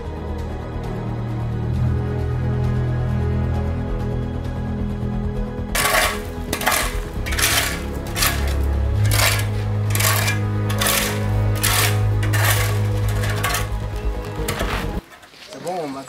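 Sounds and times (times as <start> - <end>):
background music: 0.0 - 15.1
shovel scraping gravel: 5.8 - 15.7
gravel tipped into metal bucket: 5.8 - 16.0.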